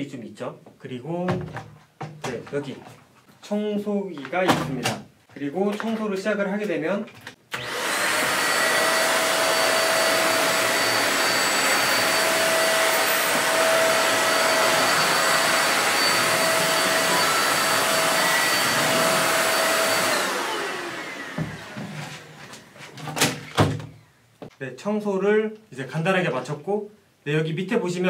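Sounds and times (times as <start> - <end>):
vacuum motor whine: 7.5 - 22.7.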